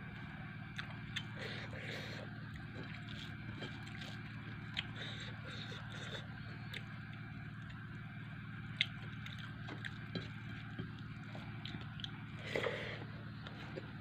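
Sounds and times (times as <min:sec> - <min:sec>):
steady low hum: 0:00.0 - 0:14.0
chewing: 0:00.7 - 0:08.0, 0:08.6 - 0:14.0.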